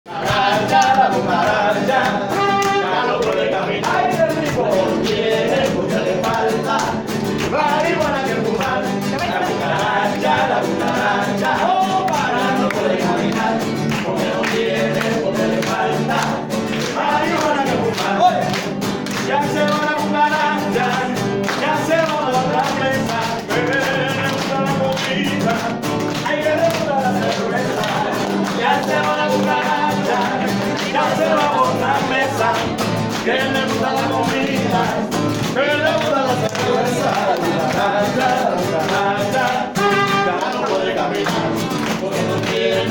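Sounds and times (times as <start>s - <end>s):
strummed guitars: 0.1s - 42.9s
voices singing: 0.1s - 42.9s.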